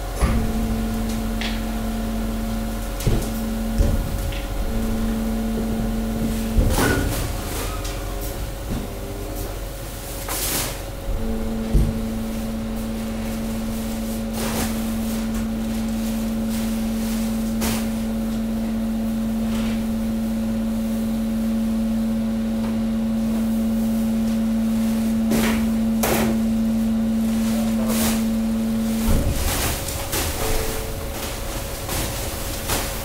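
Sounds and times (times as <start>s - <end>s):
hydraulic pump humming: 0.0s - 33.0s.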